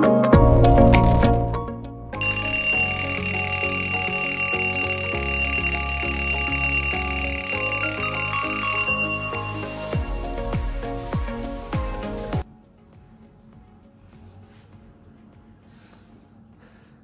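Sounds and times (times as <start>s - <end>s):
alarm ringtone melody: 2.2s - 11.4s
steady high tone: 2.2s - 12.1s.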